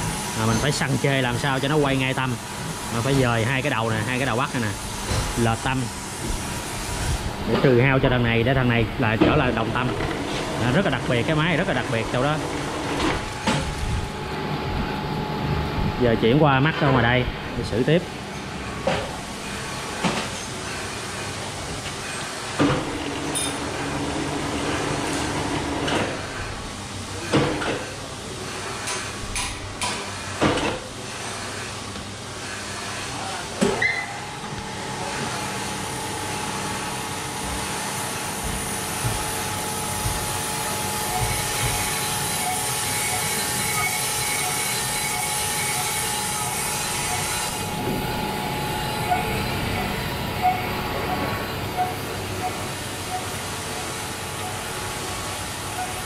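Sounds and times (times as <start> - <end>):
grinding wheel humming: 34.2 - 56.0.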